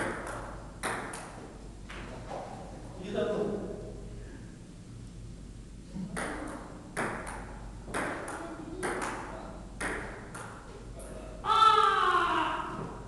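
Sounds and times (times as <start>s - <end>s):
table tennis ball clicks: 6.2s - 10.6s
person crying out: 11.4s - 13.0s.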